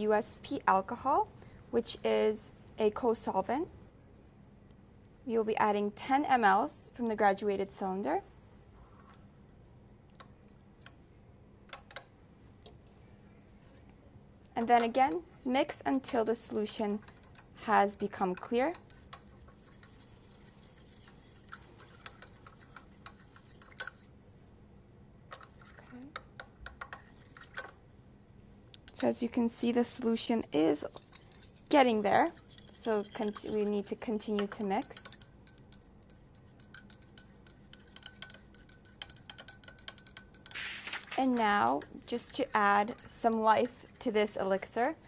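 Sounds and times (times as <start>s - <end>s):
stirring rod clinking on glass: 15.8s - 20.4s, 21.0s - 24.0s, 31.0s - 44.1s.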